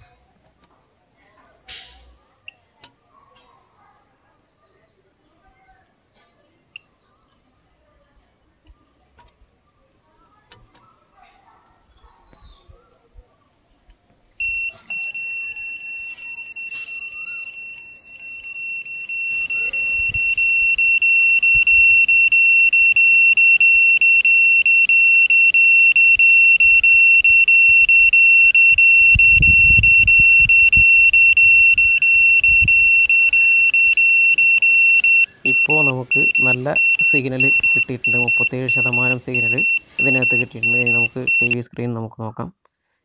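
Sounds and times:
high steady buzzer tone: 14.4s - 41.6s.

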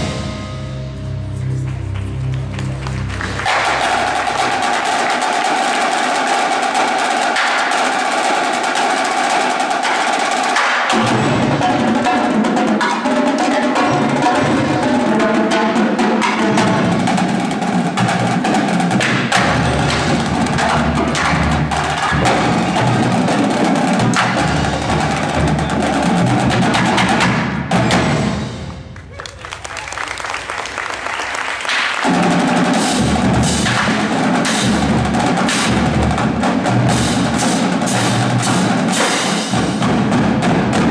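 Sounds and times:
bass drums deep strokes: 0.0s - 4.3s
tenor drums: 0.0s - 40.9s
snare drums: 3.1s - 40.9s.

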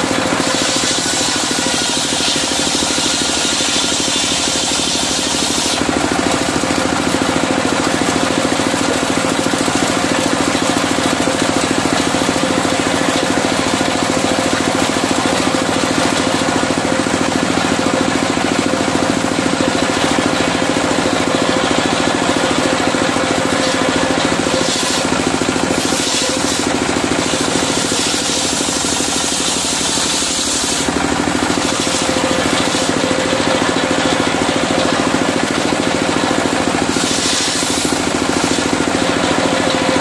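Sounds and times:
diesel engine running: 0.0s - 40.0s
saw blade hissing through wood: 0.5s - 5.8s, 24.6s - 25.1s, 27.7s - 30.9s, 36.8s - 38.6s.

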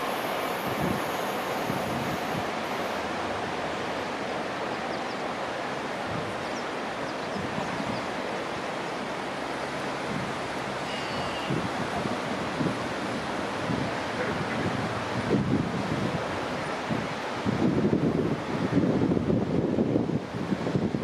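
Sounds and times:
wind buffeting microphone: 0.0s - 4.2s, 5.9s - 8.8s, 9.8s - 21.0s
departing train: 0.0s - 4.4s
surf: 0.0s - 21.0s.

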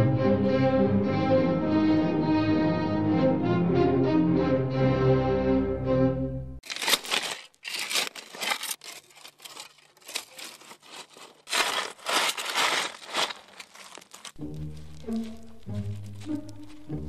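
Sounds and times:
orchestral music: 0.0s - 6.9s, 14.3s - 17.0s
shovel scraping into gravel: 6.6s - 16.9s.

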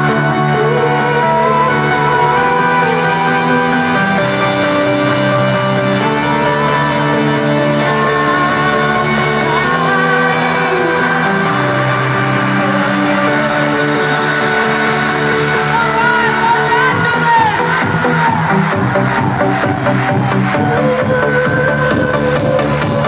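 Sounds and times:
woman singing: 0.0s - 4.8s, 5.9s - 18.4s, 20.6s - 23.0s
loud trance synth chords: 0.0s - 23.0s.

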